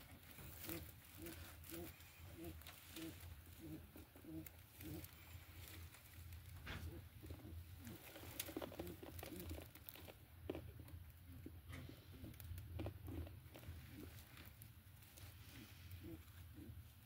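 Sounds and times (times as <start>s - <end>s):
hay rustling and crackling: 0.0s - 10.1s, 13.5s - 17.0s
low steady hum: 0.0s - 17.0s.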